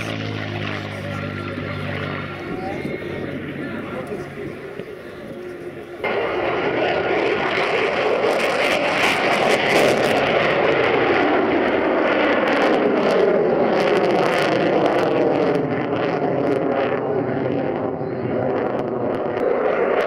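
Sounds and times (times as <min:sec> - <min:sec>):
jet engines roaring with crackle: 0:00.0 - 0:20.0.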